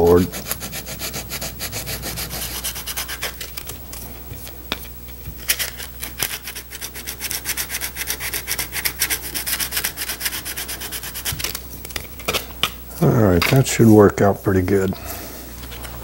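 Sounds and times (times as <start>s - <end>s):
sandpaper rubbing back and forth: 0.0s - 4.5s, 5.4s - 11.6s.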